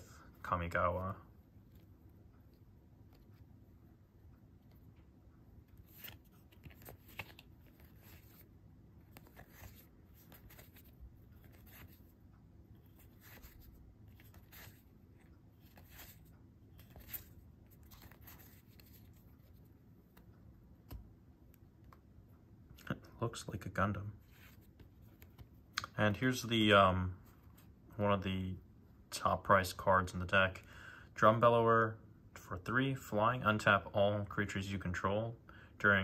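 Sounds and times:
trading cards flicking and sliding: 0:05.6 - 0:12.1, 0:12.8 - 0:21.1, 0:24.3 - 0:26.0.

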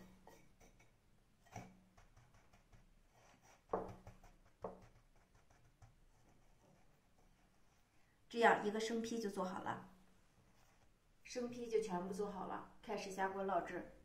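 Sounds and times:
soft thumps of dough pressed: 0:03.6 - 0:06.8.

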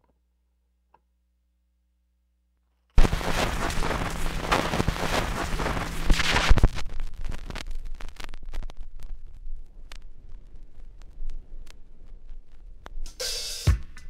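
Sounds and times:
record crackling and clicks: 0:02.9 - 0:14.0.

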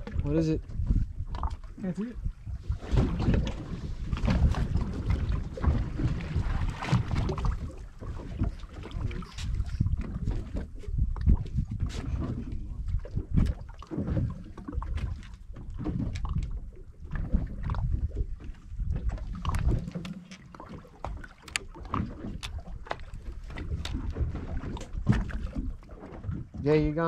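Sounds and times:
water and wind rumble: 0:00.0 - 0:27.0.

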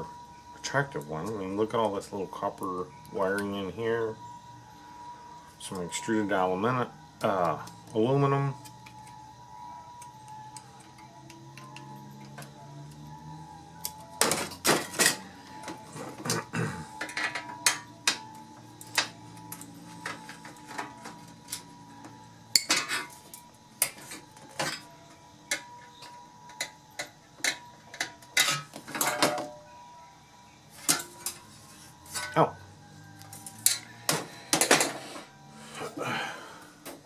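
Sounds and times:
metal parts clattering on workbench: 0:14.2 - 0:15.3, 0:17.0 - 0:18.2, 0:22.6 - 0:23.2, 0:27.4 - 0:29.6, 0:32.1 - 0:32.4, 0:33.6 - 0:35.1.

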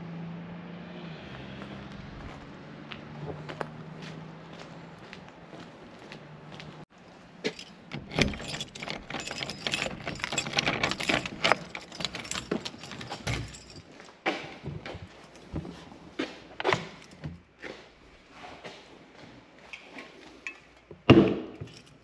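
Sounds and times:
keys jangling: 0:07.4 - 0:14.2, 0:21.4 - 0:22.0
key working in a lock: 0:07.5 - 0:13.9.

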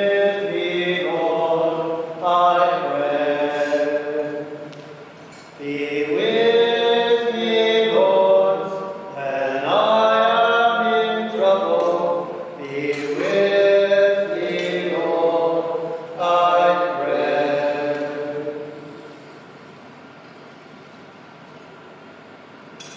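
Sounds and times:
chant-style singing: 0:00.0 - 0:19.4.

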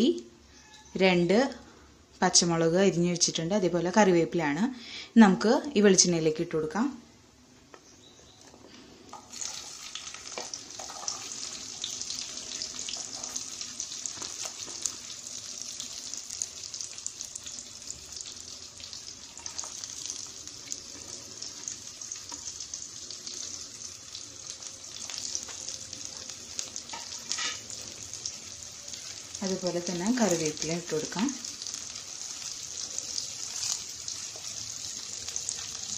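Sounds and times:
food sizzling in hot oil: 0:09.1 - 0:35.9.

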